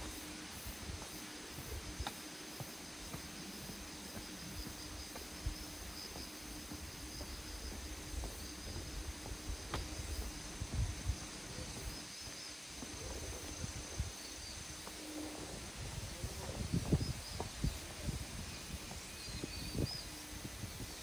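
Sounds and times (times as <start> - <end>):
footsteps on a trail: 0.0 - 20.9
insects chirring: 0.0 - 21.0.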